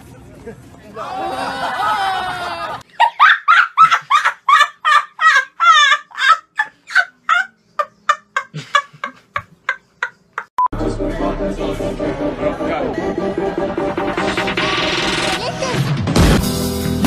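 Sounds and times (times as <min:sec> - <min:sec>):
young man laughing: 0:01.0 - 0:10.5.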